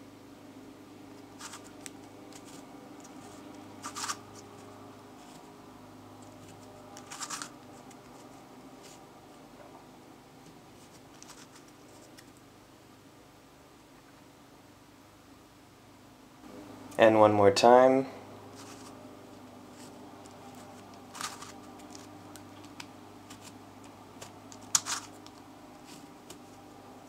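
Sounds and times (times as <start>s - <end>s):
puzzle pieces clacking: 7.0s - 7.5s, 21.1s - 22.1s, 24.6s - 25.2s
plastic puzzle pieces clicking: 24.2s - 25.4s.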